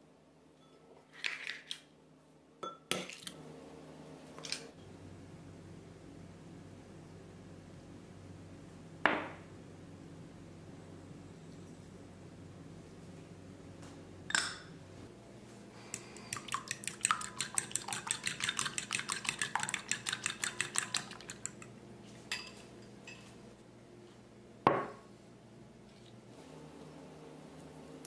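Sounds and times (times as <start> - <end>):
whisk clicking against glass bowl: 15.9 - 21.7.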